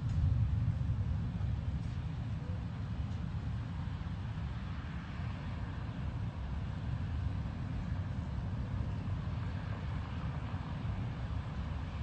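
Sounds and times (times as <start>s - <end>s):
steady low rumble: 0.0s - 4.6s.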